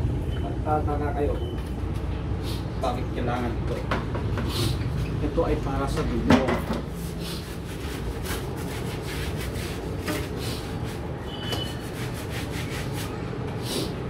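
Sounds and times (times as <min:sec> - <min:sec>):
brush scrubbing: 0:06.9 - 0:13.1.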